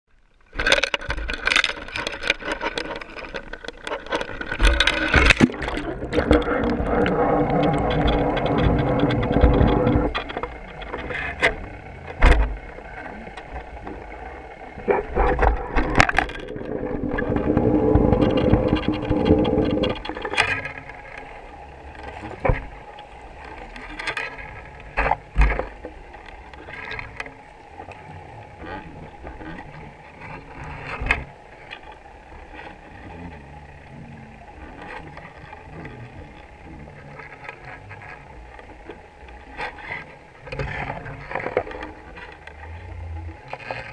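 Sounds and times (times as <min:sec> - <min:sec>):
muffled underwater hum: 0:00.1 - 0:43.9
sharp clicks and knocks: 0:00.5 - 0:14.0, 0:14.8 - 0:21.3
rushing low rumble: 0:05.1 - 0:37.4.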